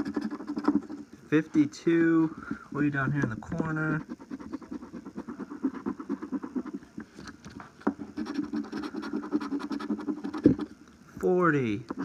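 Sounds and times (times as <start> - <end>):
coin scratching lottery ticket: 0.0 - 1.0, 3.6 - 7.3, 8.0 - 10.7.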